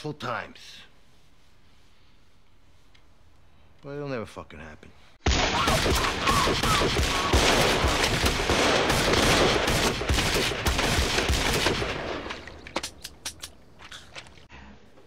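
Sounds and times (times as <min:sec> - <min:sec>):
pistol shots in rapid string: 0:05.3 - 0:12.4.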